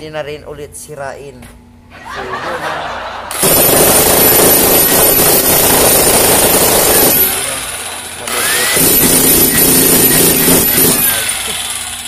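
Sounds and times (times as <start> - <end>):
electric jackhammer hammering: 3.3 - 12.0.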